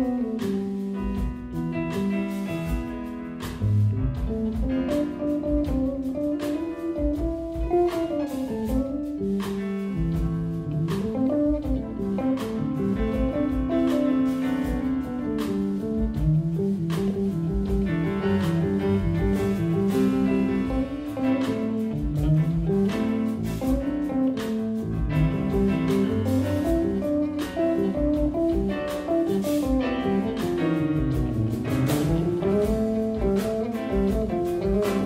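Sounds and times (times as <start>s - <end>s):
drum kit with cymbals: 0.0s - 35.0s
electric bass line with slides: 0.0s - 35.0s.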